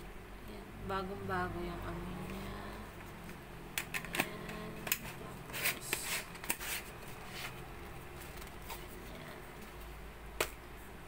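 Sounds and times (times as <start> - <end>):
plastic rustling: 5.0 - 9.9.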